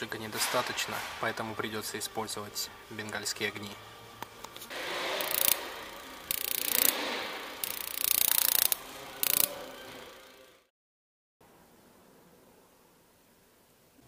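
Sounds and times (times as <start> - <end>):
electric igniter sparking: 4.5 - 10.0.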